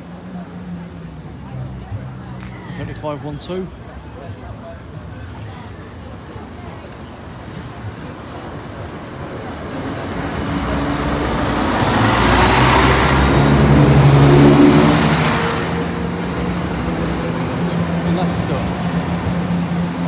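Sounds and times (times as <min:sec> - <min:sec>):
diesel engines humming: 0:05.8 - 0:20.0.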